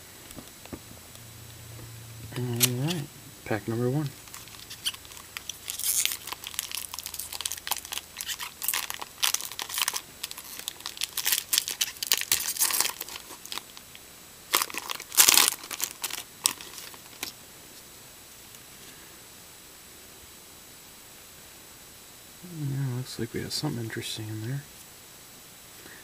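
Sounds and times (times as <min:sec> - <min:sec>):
foil wrapper crinkling and tearing: 0:04.2 - 0:17.4.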